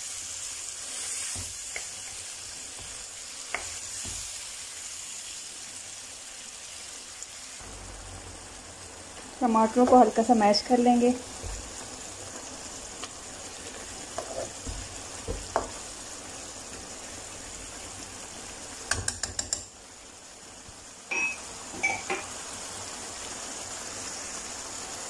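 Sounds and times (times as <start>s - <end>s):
masala sizzling in a pan: 0.0s - 25.0s
spatula scraping a pan: 13.5s - 15.8s.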